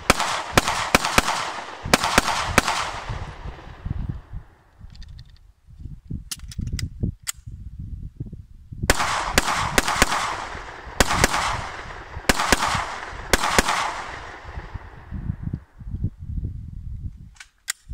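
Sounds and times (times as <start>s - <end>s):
pistol shots: 0.0s - 3.8s, 8.9s - 14.9s
wind rumble on microphone: 0.0s - 17.9s.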